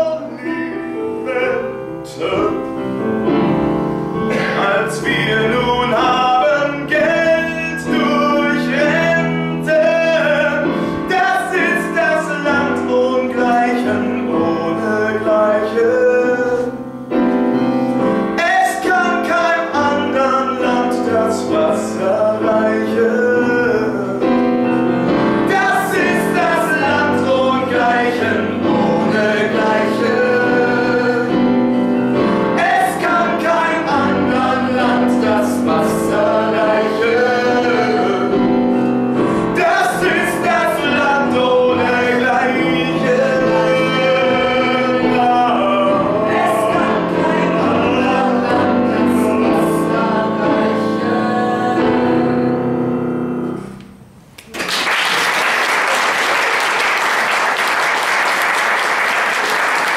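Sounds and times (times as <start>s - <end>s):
man singing: 0.0s - 3.4s, 4.2s - 16.8s, 18.2s - 52.5s
piano accompaniment: 0.0s - 59.9s
audience applause: 54.4s - 59.9s.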